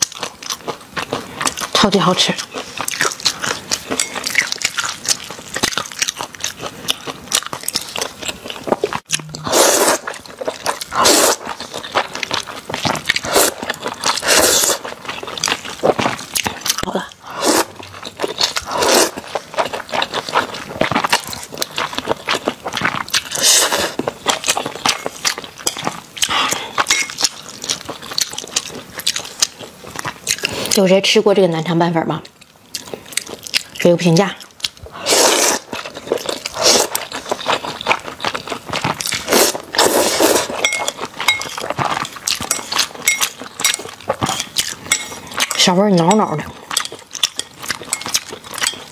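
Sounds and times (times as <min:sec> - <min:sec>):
wet mouth clicks and chewing: 0:00.0 - 0:30.9, 0:32.2 - 0:48.9
noodles slurped: 0:02.7 - 0:21.7, 0:34.9 - 0:45.7
chopsticks clinking on bowl: 0:40.6 - 0:48.9.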